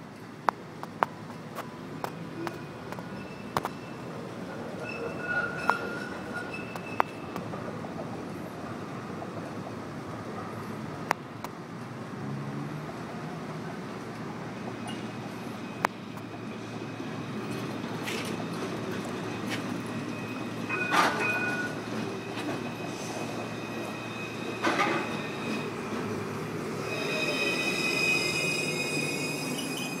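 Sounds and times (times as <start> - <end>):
tram rolling on rails: 0.0 - 30.0
high-pitched brake squealing: 2.4 - 7.3, 19.3 - 30.0.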